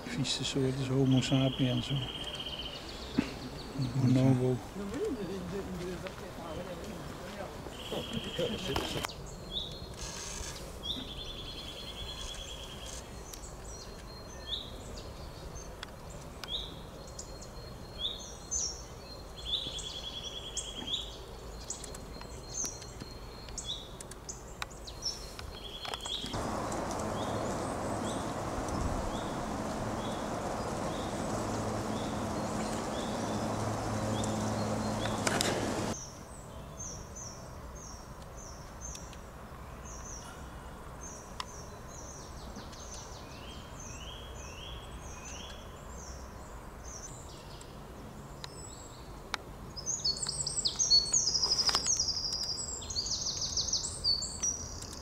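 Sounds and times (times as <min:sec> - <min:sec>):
songbirds chirping and trilling: 0:00.0 - 0:55.0
rushing noise with low hum: 0:26.4 - 0:36.0.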